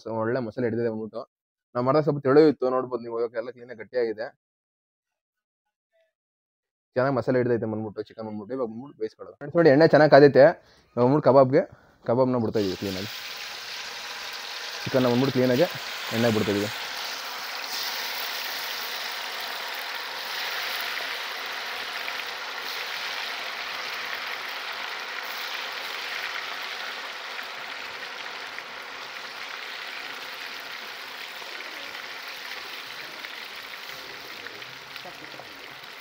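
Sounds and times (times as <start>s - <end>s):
meat deep-frying in hot oil: 12.4s - 36.0s.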